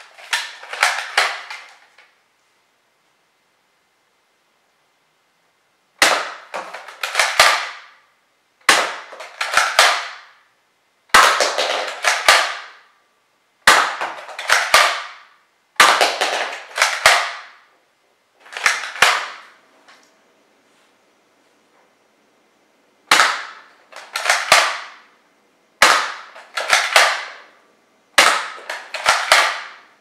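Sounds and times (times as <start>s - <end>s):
toy blaster firing sharp cracks: 0.2s - 1.8s, 6.0s - 8.0s, 8.6s - 10.4s, 11.1s - 12.9s, 13.6s - 17.7s, 18.5s - 19.5s, 23.1s - 25.1s, 25.8s - 27.5s, 28.2s - 29.9s.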